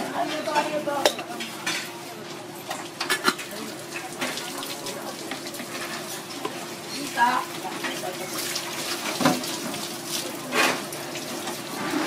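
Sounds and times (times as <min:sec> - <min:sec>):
hose water splashing: 0:03.4 - 0:12.0.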